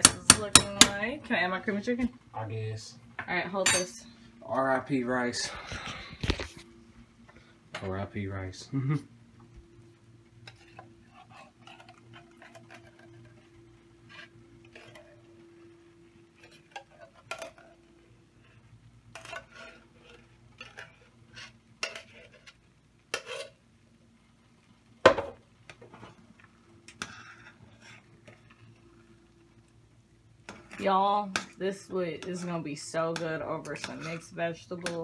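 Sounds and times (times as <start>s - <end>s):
metal spoon scraping a saucepan: 14.1s - 15.3s, 18.4s - 23.6s, 26.9s - 28.6s, 30.5s - 35.0s.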